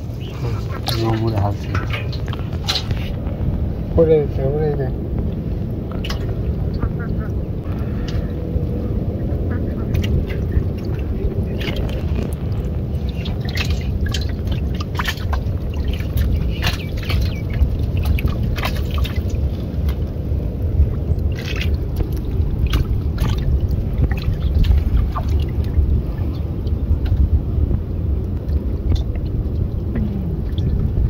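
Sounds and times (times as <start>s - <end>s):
fish splashing in a steel bowl: 0.0s - 3.3s, 5.9s - 7.1s, 9.8s - 20.2s, 20.9s - 27.2s
water splashes and drips: 0.0s - 8.9s, 9.7s - 31.0s
steady low rumble: 0.0s - 31.0s.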